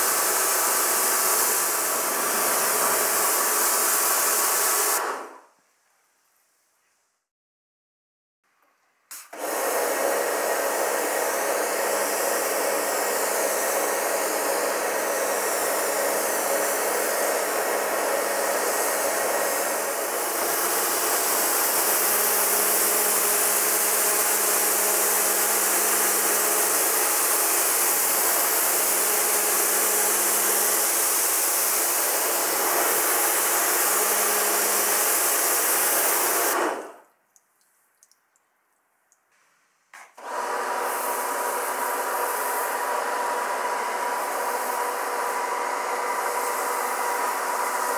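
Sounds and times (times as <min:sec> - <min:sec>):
water jet hissing on car: 0:00.0 - 0:05.0, 0:11.5 - 0:36.9, 0:40.8 - 0:47.9
pressure washer motor hum: 0:00.0 - 0:05.4, 0:09.1 - 0:37.0, 0:40.2 - 0:47.9.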